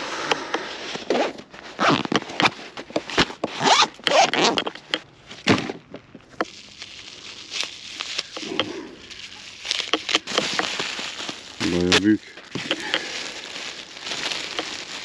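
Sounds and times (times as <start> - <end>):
zipper-like rasping pulls: 1.0 - 4.9.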